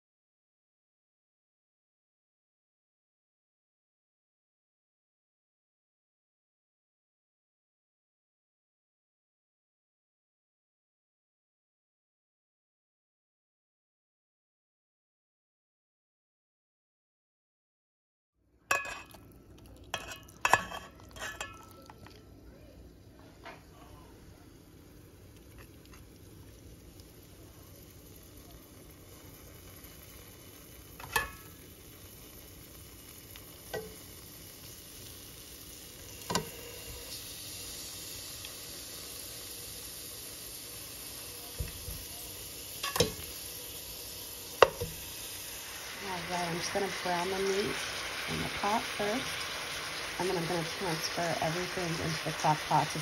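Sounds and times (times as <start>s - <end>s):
utensil clinking in steel bowl: 18.7s - 19.2s, 19.9s - 22.0s, 31.0s - 31.5s, 42.8s - 43.3s
meat sizzling in oil: 24.6s - 53.0s
tongs knocking against pot: 42.8s - 43.3s, 44.6s - 45.0s.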